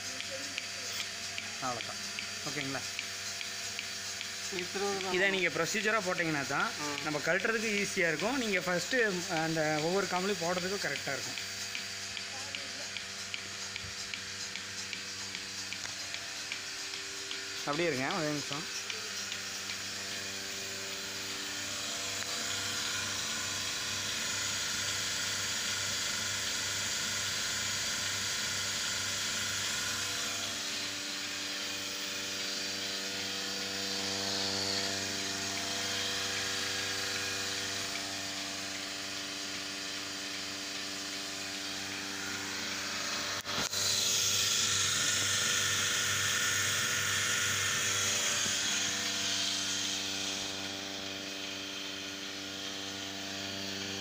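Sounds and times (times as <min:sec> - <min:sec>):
vacuum pump humming: 0:00.0 - 0:54.0
sharp click: 0:00.1 - 0:05.2, 0:09.3 - 0:20.2.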